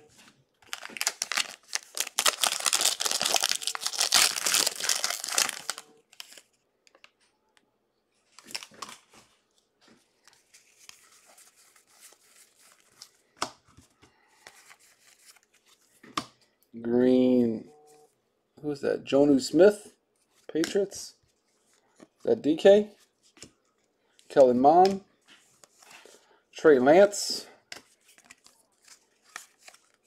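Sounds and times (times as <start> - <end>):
foil wrapper tearing and crinkling: 0.6 - 6.4
cards being flipped through: 0.6 - 7.1, 27.7 - 30.0.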